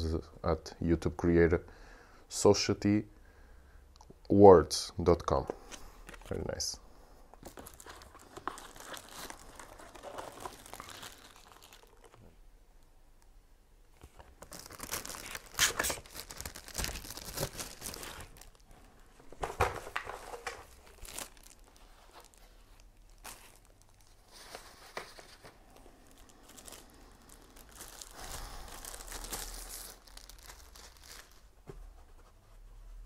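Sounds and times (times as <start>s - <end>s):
paper rustling: 7.4s - 12.2s
plastic wrap crinkling: 7.4s - 12.4s, 14.0s - 31.6s.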